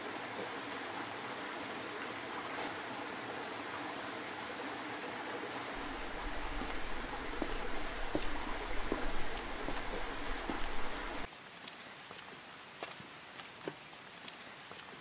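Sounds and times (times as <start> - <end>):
water flowing steadily: 0.0 - 15.0.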